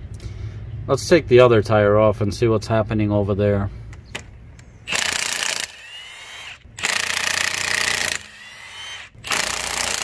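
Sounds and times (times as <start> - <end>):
impact wrench bursts: 4.9 - 10.0.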